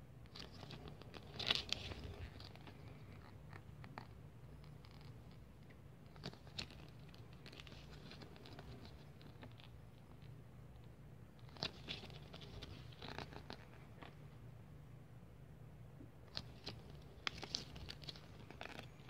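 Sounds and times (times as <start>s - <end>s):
paper pages rustling: 0.3s - 4.1s, 11.4s - 14.2s, 16.3s - 19.0s.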